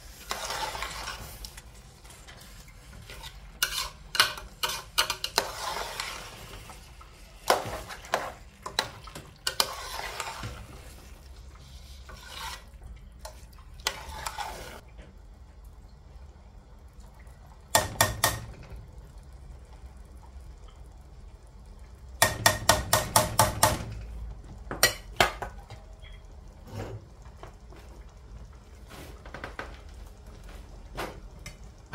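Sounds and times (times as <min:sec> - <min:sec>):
spoon scraping in a pot: 0:00.0 - 0:14.8.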